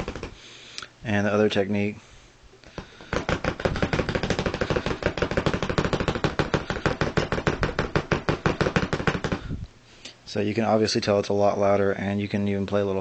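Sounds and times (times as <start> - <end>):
bass drum pedals hammering pad: 2.8 - 9.6.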